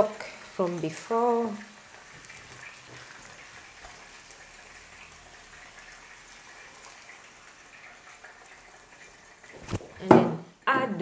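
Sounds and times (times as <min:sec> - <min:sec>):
liquid simmering in pot: 0:00.0 - 0:10.7
liquid pouring: 0:01.6 - 0:10.1.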